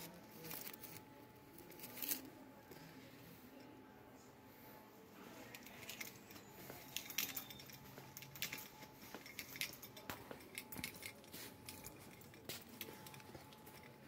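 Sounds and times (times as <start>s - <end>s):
light clicks and clinks: 5.3s - 14.0s.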